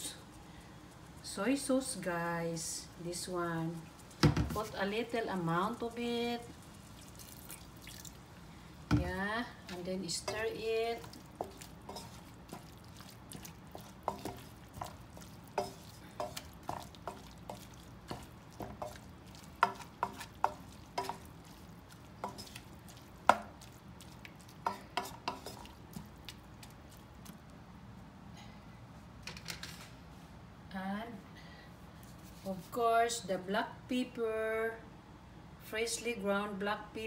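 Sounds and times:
wooden spatula scraping a pan: 8.9s - 25.8s.

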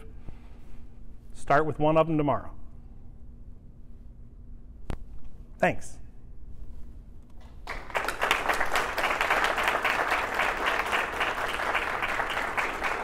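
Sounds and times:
audience applause: 7.4s - 13.0s.

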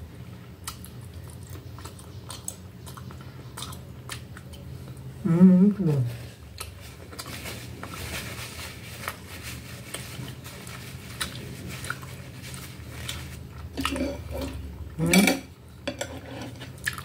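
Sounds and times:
chewing and lip clicks: 0.5s - 5.1s
paper napkin crinkling: 6.7s - 13.8s.

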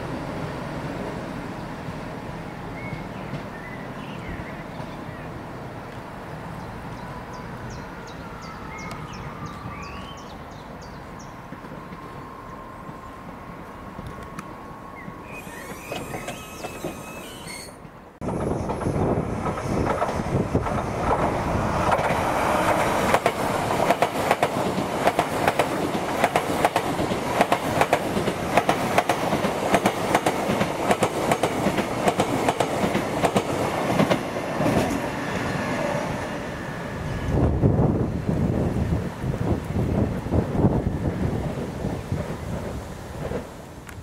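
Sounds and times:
rushing rail noise: 0.0s - 44.0s
train wheels clicking over rail joints: 15.1s - 35.1s.

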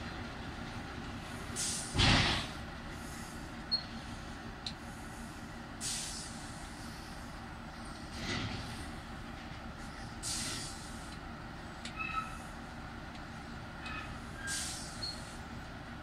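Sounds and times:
short hisses: 5.8s - 6.5s, 10.2s - 10.9s, 14.5s - 15.0s.

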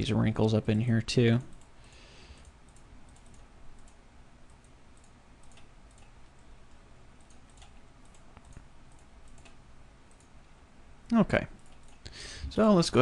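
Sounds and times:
steady low hum: 0.0s - 13.0s
computer mouse clicks: 2.3s - 10.3s, 11.6s - 12.1s.

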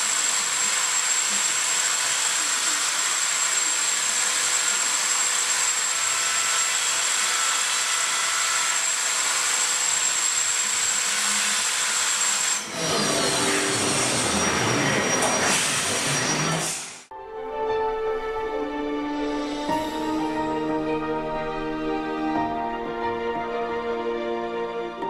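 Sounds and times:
milling machine cutting metal: 0.0s - 17.1s.

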